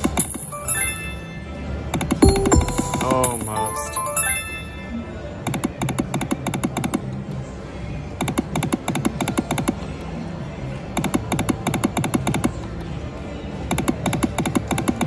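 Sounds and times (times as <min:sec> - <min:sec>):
slot machine win jingle: 0:00.0 - 0:05.4.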